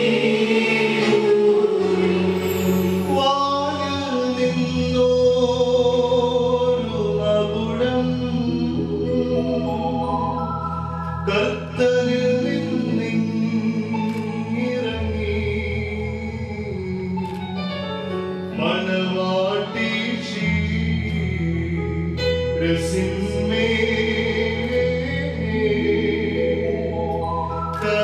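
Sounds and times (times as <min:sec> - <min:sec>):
choir singing a hymn: 0:00.0 - 0:03.1.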